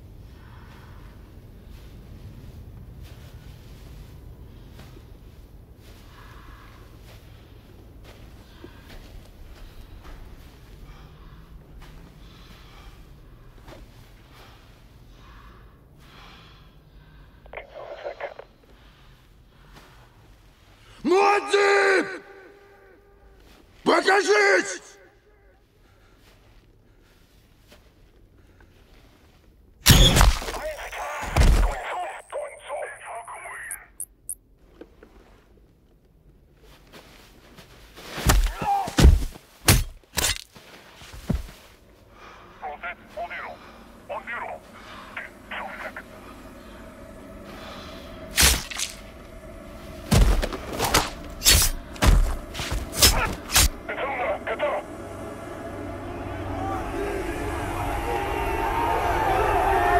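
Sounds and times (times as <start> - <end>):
man breathing heavily: 0.0 - 17.5, 41.6 - 48.4, 49.0 - 59.0
low steady rumble: 41.8 - 59.9
heavy thuds and blows: 50.0 - 53.8.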